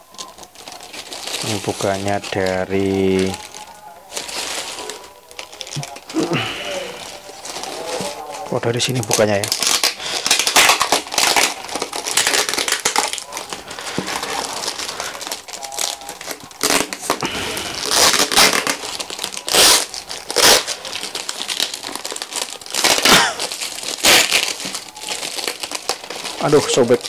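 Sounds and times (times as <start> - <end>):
plastic wrapping crinkling: 0.0 - 27.0
tape being pulled off: 15.8 - 18.8, 19.5 - 20.8, 23.9 - 24.8.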